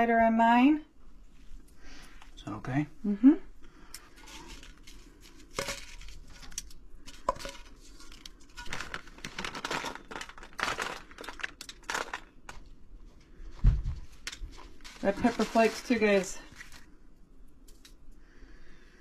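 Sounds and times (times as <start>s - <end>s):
aluminium foil crinkling: 3.9s - 12.7s, 14.0s - 16.9s
shredded cheese scattered by hand: 8.6s - 12.3s.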